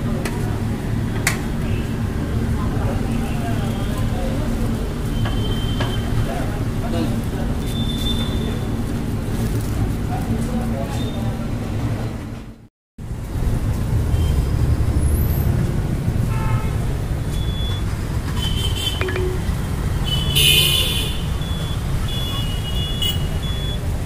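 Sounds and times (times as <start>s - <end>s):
road traffic rumble: 0.0s - 24.0s
short high beeps: 19.0s - 19.6s.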